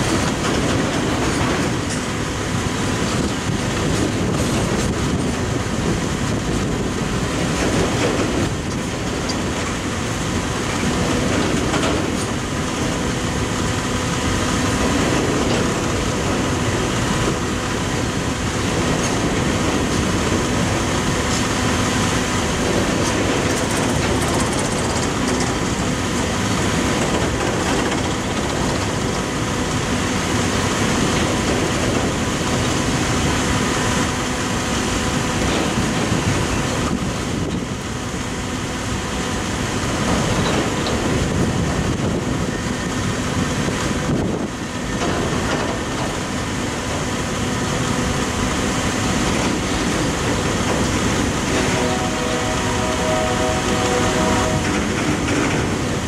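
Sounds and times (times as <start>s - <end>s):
wheels clicking over rail joints: 0.0s - 2.2s, 3.0s - 9.9s, 10.6s - 13.0s, 22.6s - 29.3s, 40.0s - 42.5s, 43.8s - 47.1s, 48.5s - 52.0s, 53.8s - 56.0s
freight train rumbling past: 0.0s - 56.0s.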